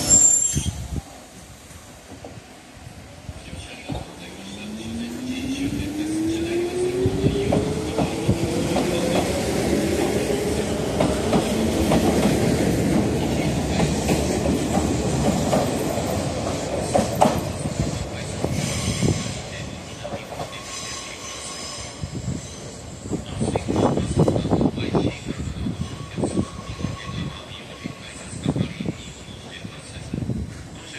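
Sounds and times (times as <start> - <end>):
high wheel squeal: 0.0 - 0.8, 20.5 - 24.4.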